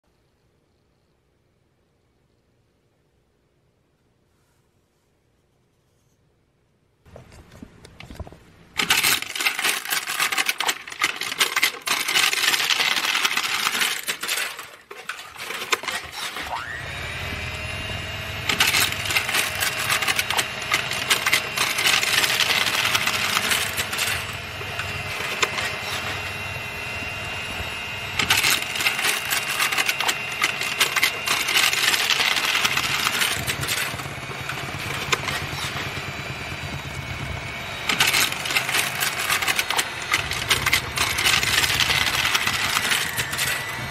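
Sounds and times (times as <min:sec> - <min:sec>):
electric mixer motor whining: 0:15.1 - 0:43.9.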